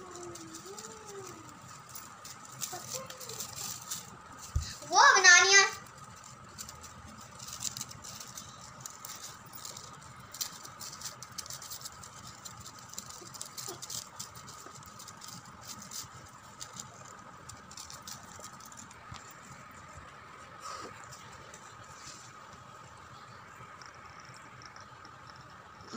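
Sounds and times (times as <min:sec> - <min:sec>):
paper rustling and crackling: 0:00.0 - 0:20.1.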